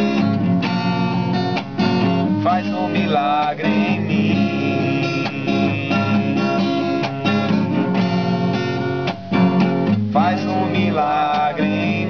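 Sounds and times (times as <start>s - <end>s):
acoustic guitar strumming: 0.0s - 12.0s
person singing: 2.4s - 7.6s, 10.1s - 12.0s.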